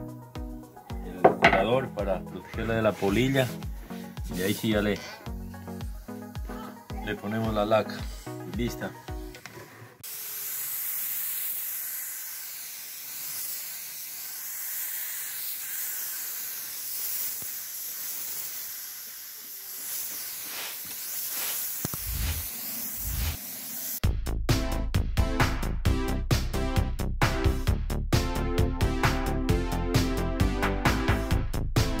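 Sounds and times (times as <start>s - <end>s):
spray gun hissing: 2.8s - 9.1s, 10.0s - 24.0s.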